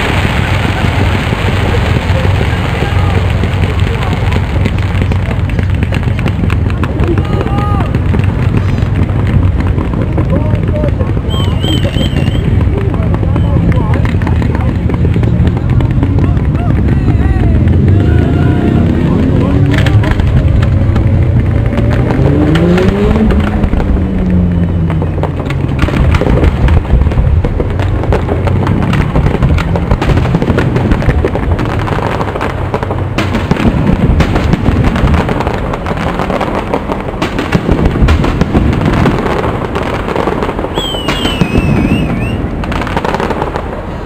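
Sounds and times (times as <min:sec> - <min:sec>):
fireworks crackling and banging: 0:00.0 - 0:44.0
high wavering whistle: 0:40.7 - 0:42.4.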